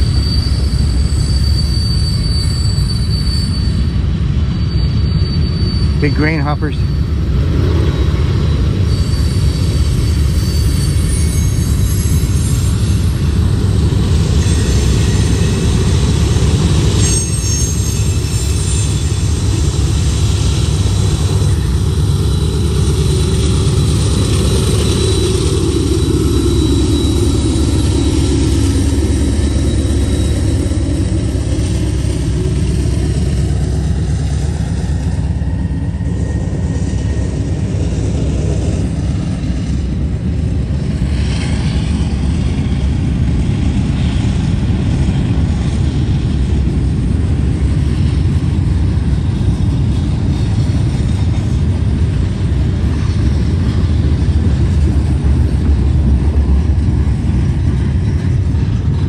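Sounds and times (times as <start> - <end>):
high wheel squeals: 0.0 - 39.8
diesel locomotive engine passing: 0.0 - 59.0
steel wheels rumbling on rail: 0.0 - 59.0.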